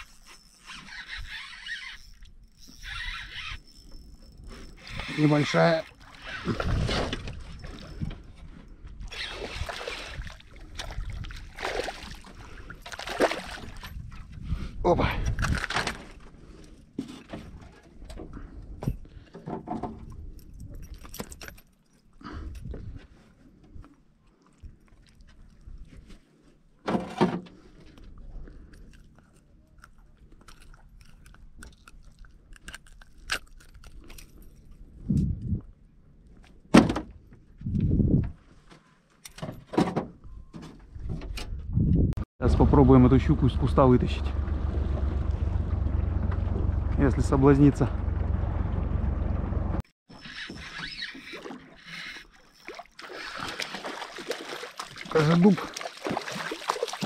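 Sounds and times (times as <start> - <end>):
wind on microphone: 35.0 - 35.7, 37.6 - 38.4, 41.0 - 42.2
fish splashing in water: 50.7 - 57.0.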